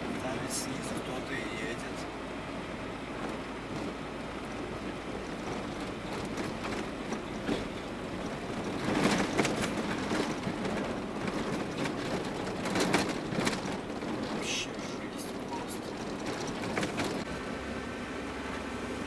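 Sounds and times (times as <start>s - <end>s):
van engine and tyre noise: 0.0s - 19.0s
bumps and rattling clatter: 3.0s - 17.4s.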